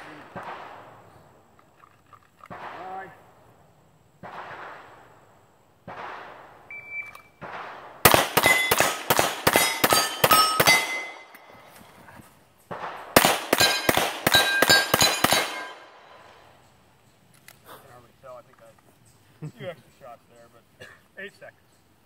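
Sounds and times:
rapid handgun fire: 0.0 - 1.2, 2.5 - 3.4, 4.2 - 6.7, 7.4 - 11.3, 12.7 - 16.2
steel plate targets ringing: 8.1 - 11.7, 13.0 - 16.2.

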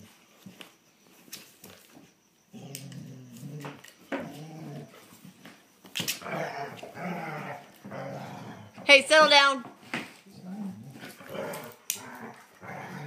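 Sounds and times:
dogs growling: 2.5 - 5.4, 6.0 - 8.8, 10.2 - 13.0.

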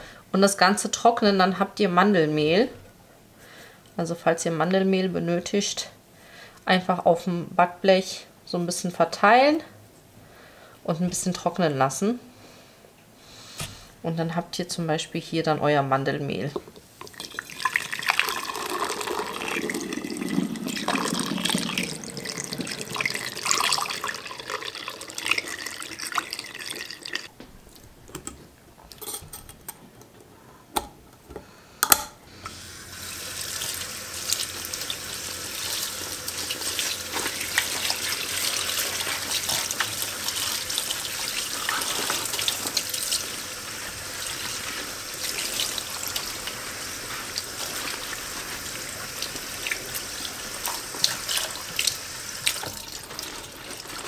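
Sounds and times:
kitchen tap running into sink: 17.0 - 27.3, 32.5 - 54.0.

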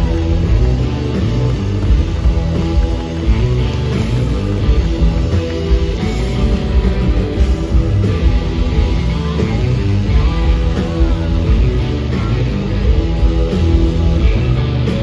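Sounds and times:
blues-rock band playing: 0.0 - 15.0
electric guitars bending notes: 0.0 - 15.0.

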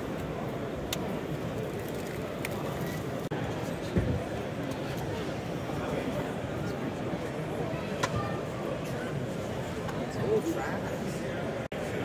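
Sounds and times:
crowd murmur in a large hall: 0.0 - 12.0.

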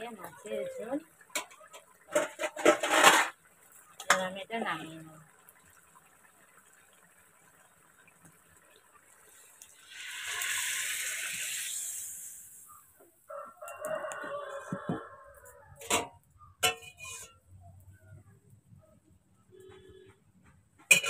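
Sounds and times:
cooking pots knocking: 1.2 - 3.3
rooster crowing: 13.3 - 15.8.

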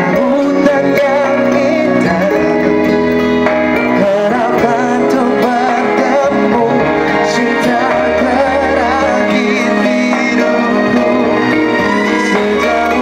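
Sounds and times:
instrumental accompaniment: 0.0 - 13.0
man singing pop ballad: 0.0 - 13.0.

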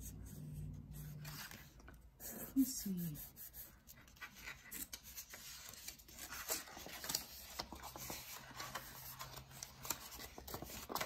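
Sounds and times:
paper rustling and crinkling: 1.0 - 2.0, 3.9 - 11.0.

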